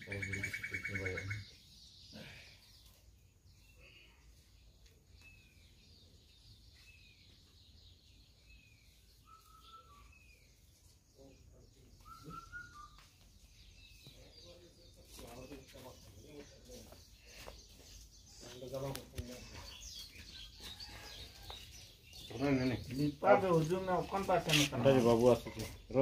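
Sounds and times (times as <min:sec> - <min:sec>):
bird chirps: 0:00.0 - 0:26.0
bird whistled notes: 0:09.2 - 0:10.4, 0:12.0 - 0:13.1
person speaking: 0:22.3 - 0:26.0.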